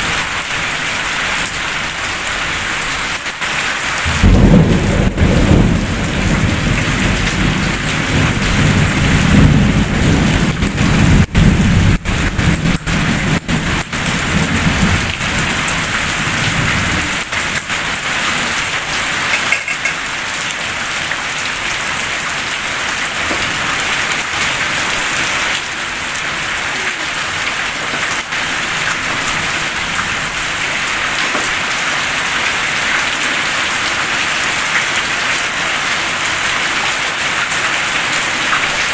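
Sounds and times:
heavy rain on roof tiles: 0.0 - 38.9
low roll of thunder: 4.0 - 17.8.

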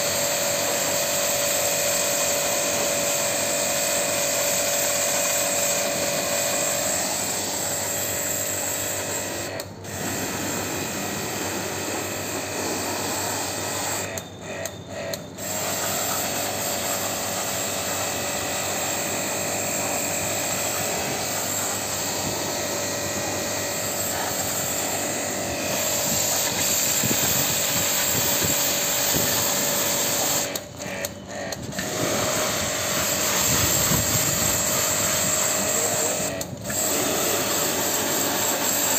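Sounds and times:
jet washer motor whine: 0.0 - 38.9
water spray hissing: 15.4 - 30.6.

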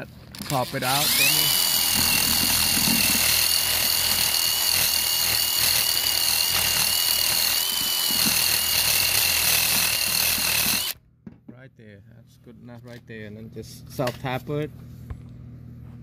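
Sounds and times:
rotary tool grinding metal: 0.0 - 11.0.

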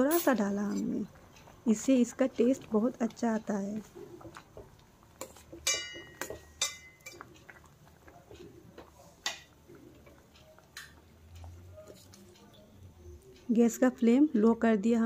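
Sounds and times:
metal spoon clinking on pot: 0.0 - 1.1, 5.2 - 7.7.

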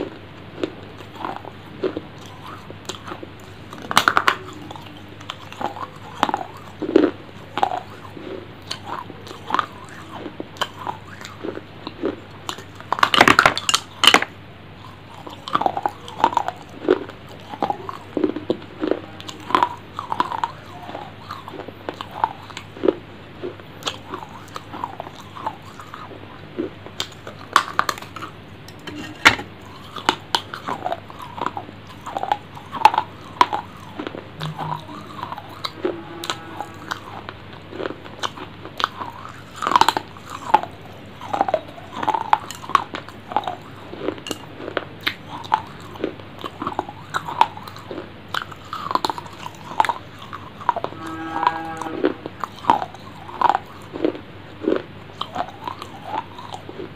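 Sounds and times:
person chewing and crunching: 0.0 - 56.9
mouth sounds: 28.0 - 37.5.

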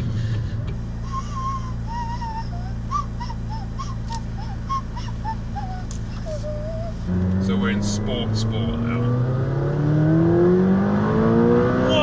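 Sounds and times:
car engine droning in cabin: 0.0 - 12.0
person whistling a tune: 1.1 - 6.9.

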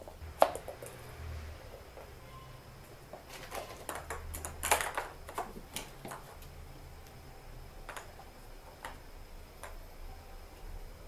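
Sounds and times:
plastic balls clicking: 0.0 - 2.2, 2.9 - 7.2, 7.8 - 9.8.

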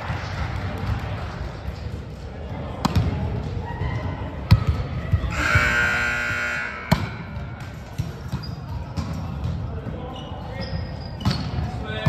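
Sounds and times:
ball thuds echoing: 6.8 - 9.6.

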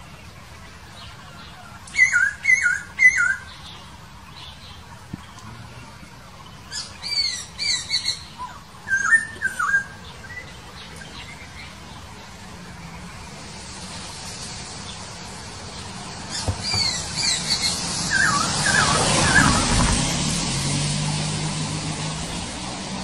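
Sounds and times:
bird calling: 6.6 - 11.2, 16.2 - 20.0.

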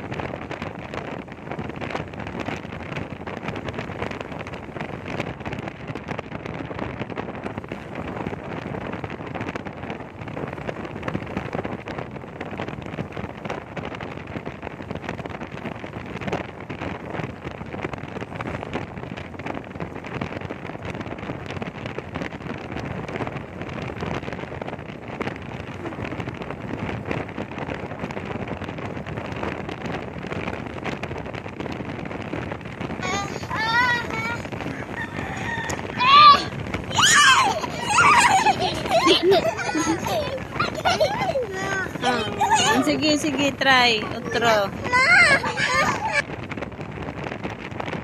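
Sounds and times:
wind buffeting microphone: 0.0 - 48.0.

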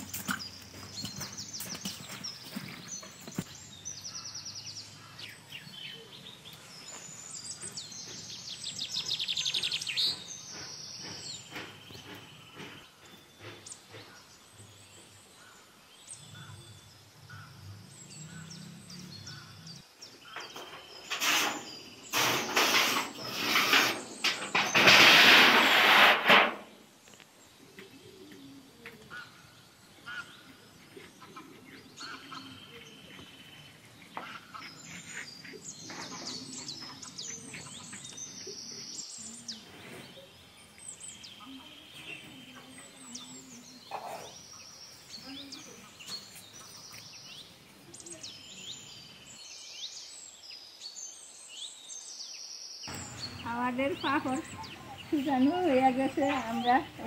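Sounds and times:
small birds chirping: 0.0 - 25.6, 26.6 - 57.0
loud rustling rushing noise: 21.2 - 26.7.

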